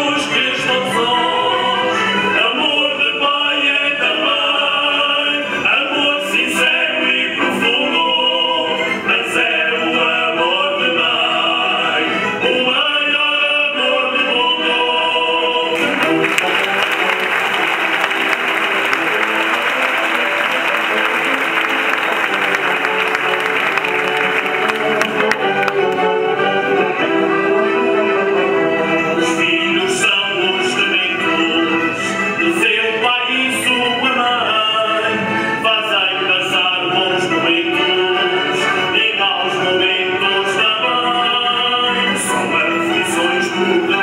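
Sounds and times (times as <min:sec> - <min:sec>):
group singing together: 0:00.0 - 0:25.6
audience applause: 0:15.8 - 0:26.3.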